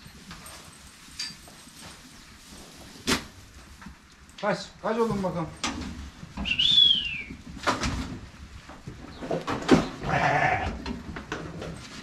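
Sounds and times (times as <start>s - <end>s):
lambs bleating: 10.0s - 10.8s.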